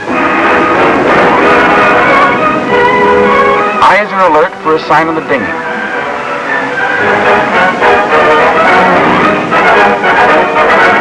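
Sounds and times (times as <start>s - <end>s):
film score music with held notes: 0.0s - 11.0s.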